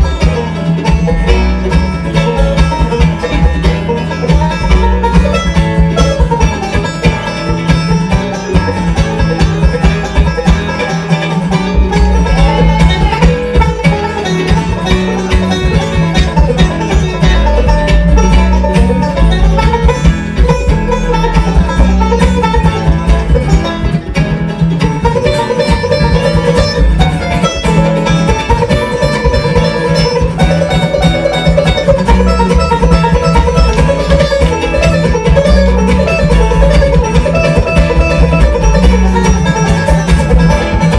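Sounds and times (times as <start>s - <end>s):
acoustic band backing: 0.0s - 40.9s
banjo picking solo: 0.0s - 40.9s
upright bass: 0.0s - 40.9s.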